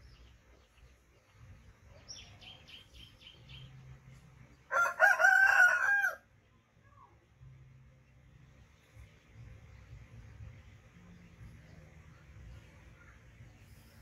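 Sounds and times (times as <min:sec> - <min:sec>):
small bird chirping: 0:00.0 - 0:04.2
rooster crowing: 0:04.7 - 0:06.2.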